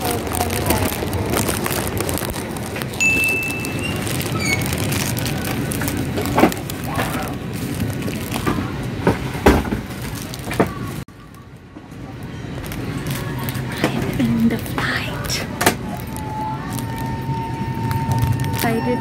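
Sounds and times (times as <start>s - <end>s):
brief high tone: 3.0s - 4.1s.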